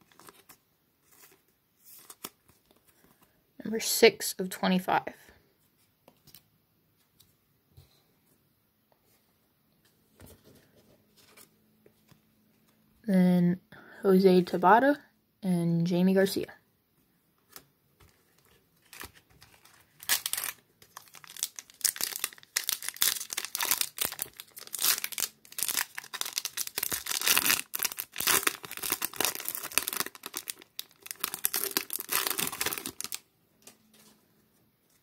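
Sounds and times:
foil wrapper tearing and crinkling: 0:18.8 - 0:33.2.

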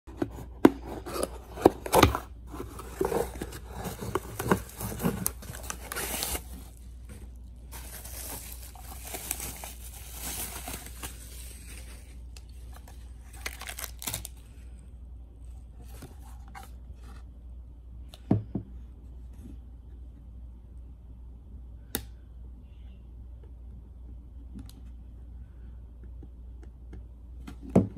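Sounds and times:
cardboard box tearing and crinkling: 0:00.8 - 0:06.8, 0:07.8 - 0:11.8, 0:13.2 - 0:14.3.

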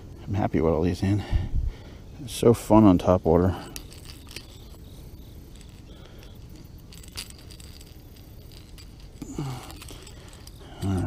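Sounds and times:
metal pliers clinking on hooks: 0:03.5 - 0:11.0.

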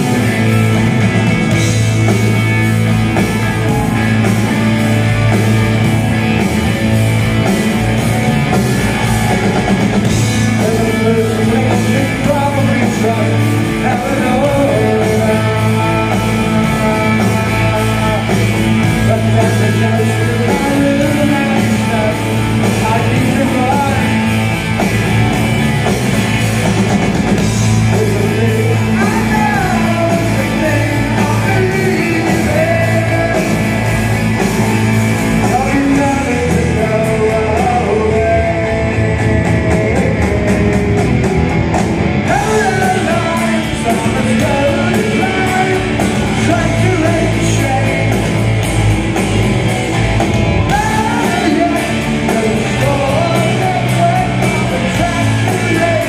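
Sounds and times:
bass guitar: 0:00.0 - 0:56.0
drums: 0:00.0 - 0:56.0
electric guitars: 0:00.0 - 0:56.0
man singing lead vocal: 0:09.0 - 0:24.8, 0:27.3 - 0:41.3, 0:42.2 - 0:48.4, 0:50.6 - 0:56.0.

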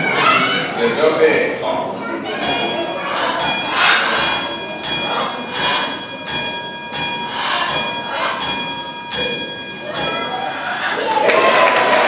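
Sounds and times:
small metal bell ringing: 0:02.4 - 0:10.9.

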